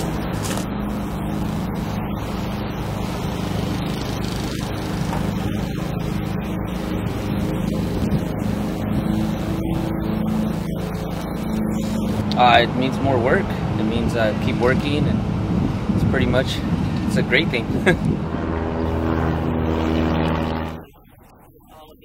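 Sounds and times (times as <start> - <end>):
motor droning steadily: 0.0 - 22.0.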